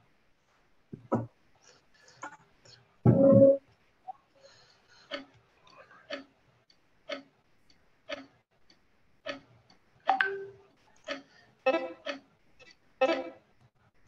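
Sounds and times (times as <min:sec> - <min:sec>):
countdown timer ticking: 0:10.1 - 0:12.2, 0:13.0 - 0:13.4.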